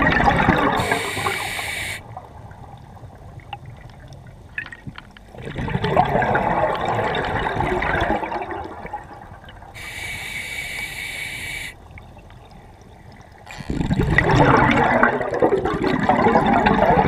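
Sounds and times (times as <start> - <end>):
exhaled air bubbling underwater: 0.0 - 17.0
regulator inhalation hiss: 0.8 - 2.0, 9.8 - 11.8
faint clicks: 9.8 - 14.0.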